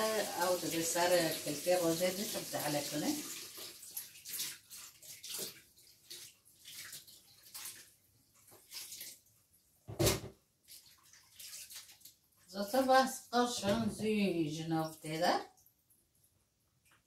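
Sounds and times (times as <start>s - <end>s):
water splashing in a metal sink: 0.0s - 13.8s
thump: 9.9s - 10.4s.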